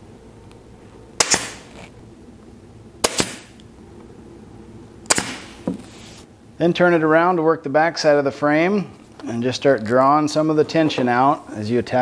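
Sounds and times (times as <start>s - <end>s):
pneumatic stapler firing: 1.2s - 1.8s, 3.0s - 3.6s, 5.1s - 5.6s.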